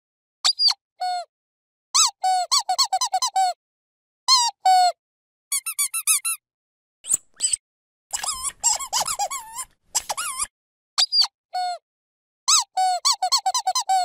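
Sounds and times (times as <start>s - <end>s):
squeaky dog toy squeaking: 2.0s - 3.6s, 4.3s - 6.4s, 7.1s - 11.3s, 12.5s - 14.0s.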